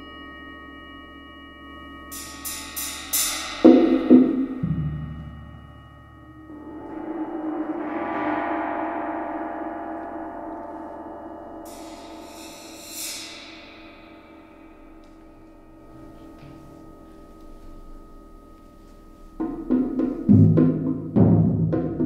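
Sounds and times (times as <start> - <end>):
gong ringing: 2.0 - 18.6
high hissing shimmer: 2.1 - 3.7, 5.2 - 16.1.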